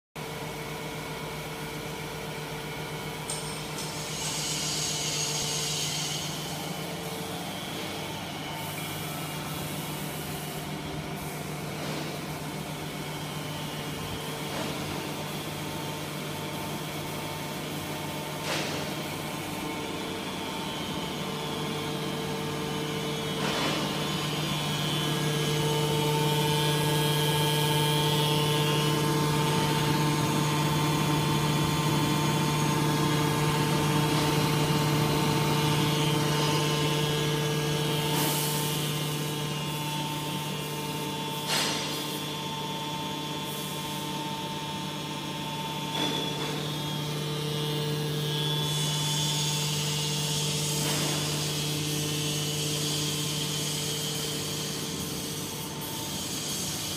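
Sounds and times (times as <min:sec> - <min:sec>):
hydraulic pump motor humming: 0:17.6 - 0:41.8.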